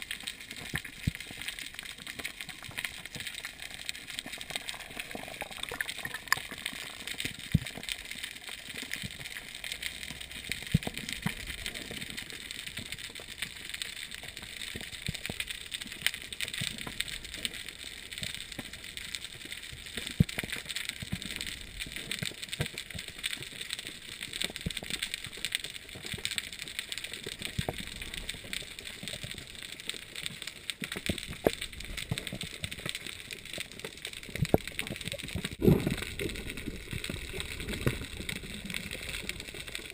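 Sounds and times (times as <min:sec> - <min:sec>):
crackle of snapping shrimp: 0:00.0 - 0:39.9.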